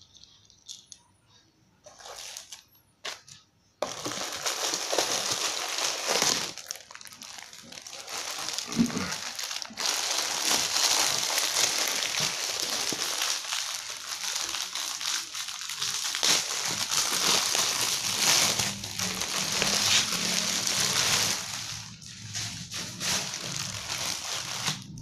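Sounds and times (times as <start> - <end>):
plastic bag crinkling: 1.8 - 25.0.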